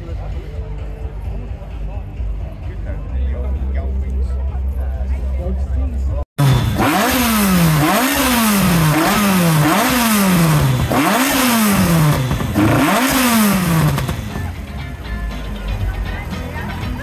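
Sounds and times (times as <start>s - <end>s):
car engine revving: 6.4s - 14.6s.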